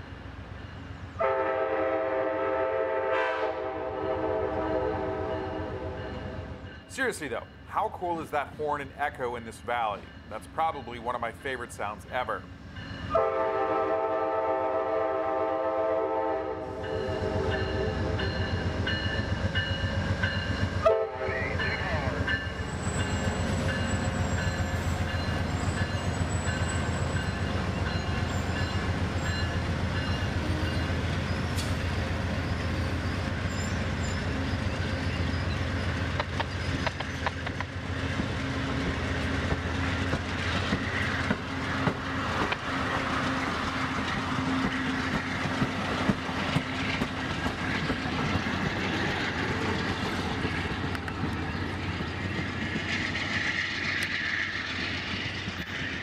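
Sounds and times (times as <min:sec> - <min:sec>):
train coaches rumbling: 0:00.0 - 0:56.0
train wheels clattering on rails: 0:21.6 - 0:56.0.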